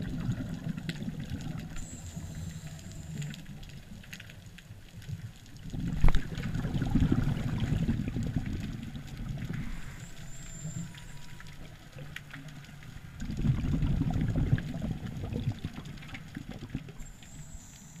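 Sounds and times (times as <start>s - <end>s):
underwater bubbling rumble: 0.0s - 17.3s
faint scattered clicks: 0.4s - 6.5s.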